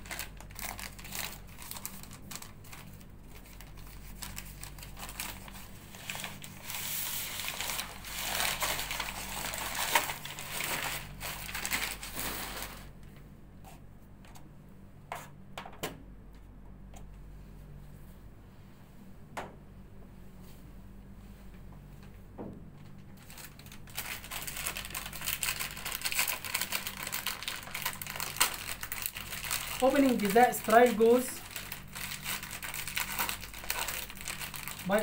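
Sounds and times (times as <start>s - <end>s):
wrappers crinkling and rustling: 0.0s - 13.0s, 23.1s - 35.0s.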